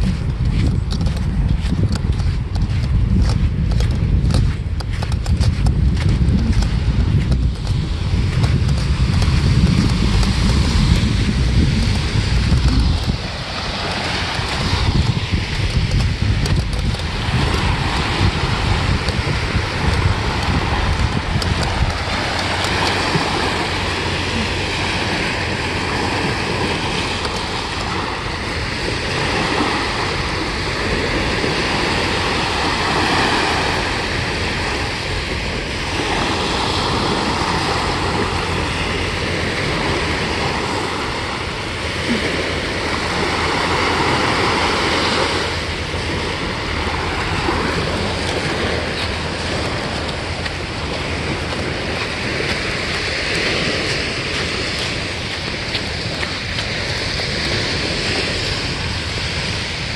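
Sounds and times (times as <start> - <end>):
low wind rumble on microphone: 0.0 - 59.9
small waves breaking on sand: 0.0 - 59.9.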